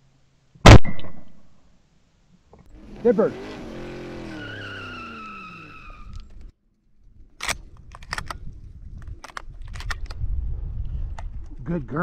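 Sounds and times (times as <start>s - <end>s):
shotgun metallic clicks: 7.4s - 8.4s, 9.0s - 10.2s.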